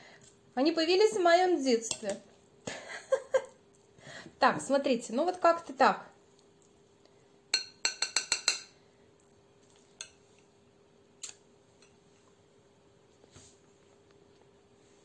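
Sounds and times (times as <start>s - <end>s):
metal spoon clinking glass bowl: 7.5s - 8.8s, 10.0s - 10.2s.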